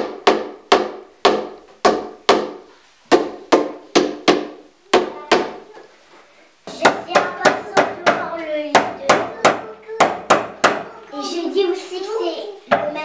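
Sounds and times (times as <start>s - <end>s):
mallet striking wooden panels: 0.0s - 5.6s, 6.7s - 10.9s.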